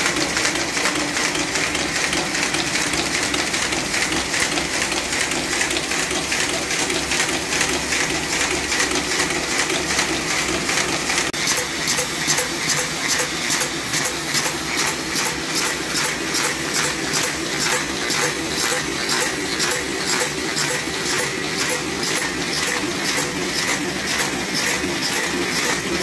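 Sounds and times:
fast regular machine ticking: 0.0s - 26.0s
paper folding machine whirring: 0.0s - 26.0s.

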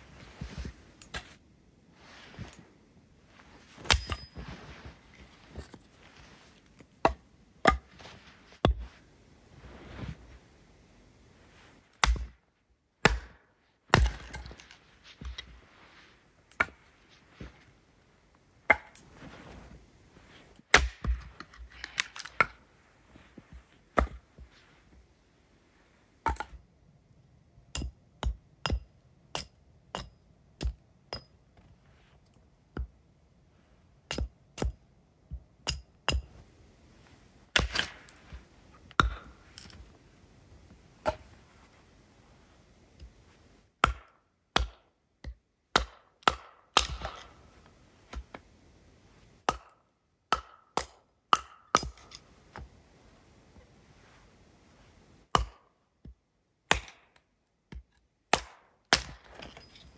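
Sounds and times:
hatchet splitting firewood: 3.9s - 4.3s, 6.7s - 7.9s, 12.0s - 12.3s, 13.0s - 14.7s, 18.7s - 19.0s, 20.7s - 22.5s, 34.1s - 34.8s, 37.5s - 38.0s, 43.8s - 47.3s, 49.5s - 52.1s, 56.7s - 57.1s, 57.7s - 59.9s.

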